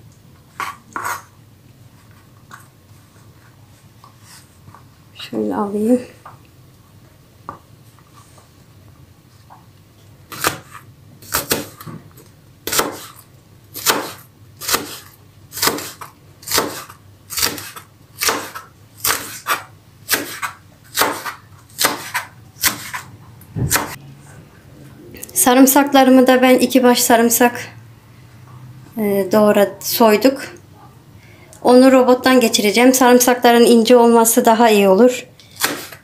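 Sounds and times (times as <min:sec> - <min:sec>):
knife chopping on cutting board: 0:10.3 - 0:11.9, 0:12.7 - 0:13.2, 0:13.8 - 0:24.0, 0:35.5 - 0:36.0.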